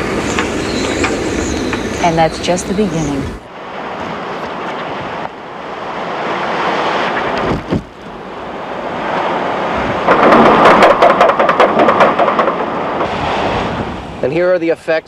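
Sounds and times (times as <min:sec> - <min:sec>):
strong wind on microphone: 0:00.0 - 0:14.4
wind buffeting crackles: 0:00.0 - 0:15.0.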